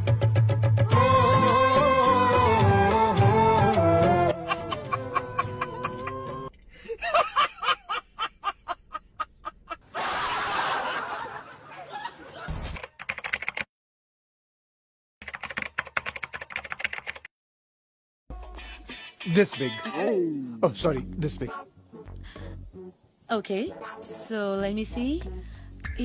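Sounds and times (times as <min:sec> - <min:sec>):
music: 0:00.0 - 0:06.5, 0:18.3 - 0:20.0, 0:20.6 - 0:26.0.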